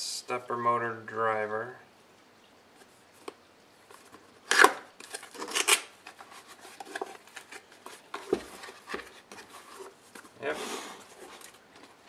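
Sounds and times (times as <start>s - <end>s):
cardboard flaps scraping: 5.0s - 12.0s
foam packing sliding: 8.3s - 11.6s.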